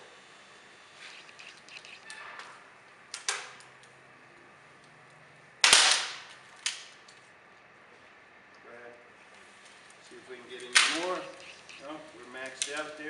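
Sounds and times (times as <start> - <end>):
fiberglass pole cracking: 5.6 - 7.1.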